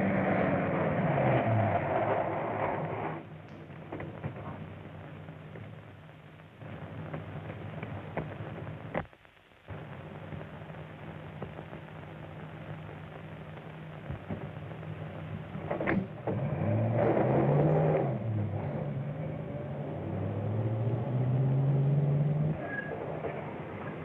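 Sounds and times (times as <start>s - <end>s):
car engine running and revving: 0.0s - 3.0s, 16.2s - 22.6s.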